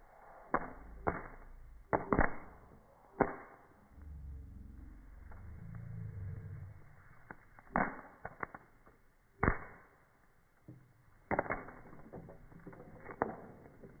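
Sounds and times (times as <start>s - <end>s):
popcorn popping in skillet: 11.3s - 14.0s.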